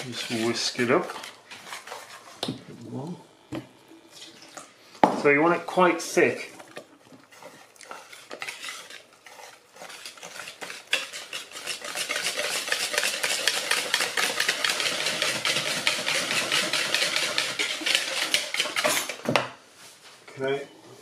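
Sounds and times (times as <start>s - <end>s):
whisk scraping batter in bowl: 0.0s - 3.1s, 5.2s - 19.2s.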